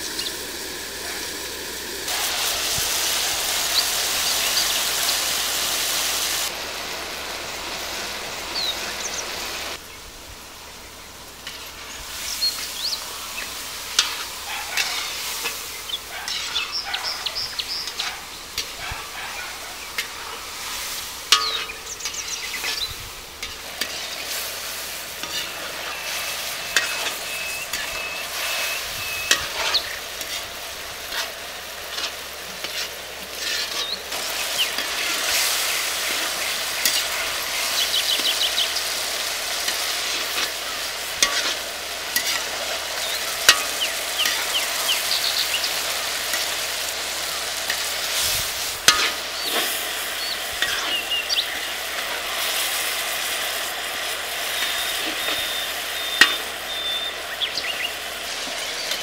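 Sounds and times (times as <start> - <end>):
curry sizzling in a pan: 0.0 - 59.0
spoon scraping and clicking on pan: 56.2 - 56.4.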